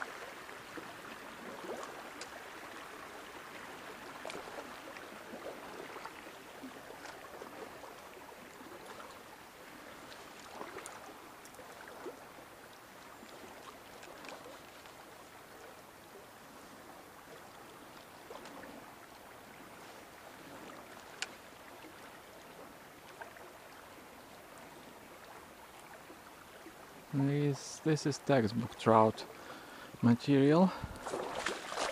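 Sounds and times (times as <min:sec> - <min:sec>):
faint clicks: 0:01.8 - 0:02.4, 0:21.0 - 0:21.4
river rushing over stones: 0:26.1 - 0:31.9.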